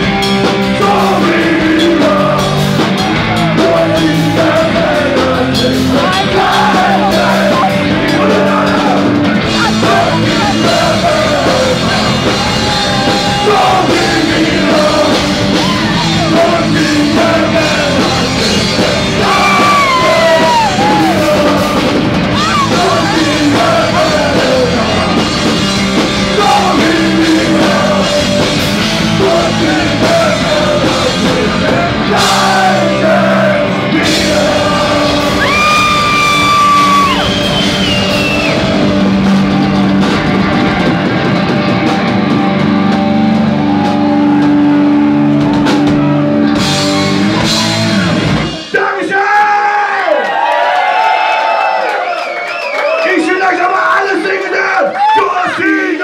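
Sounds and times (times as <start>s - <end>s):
rock band playing: 0.0s - 49.2s
man singing: 0.6s - 25.6s, 26.2s - 36.7s.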